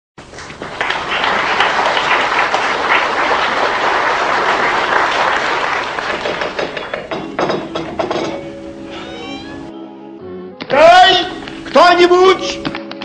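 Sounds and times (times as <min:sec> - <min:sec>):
audience applause: 0:00.2 - 0:07.1.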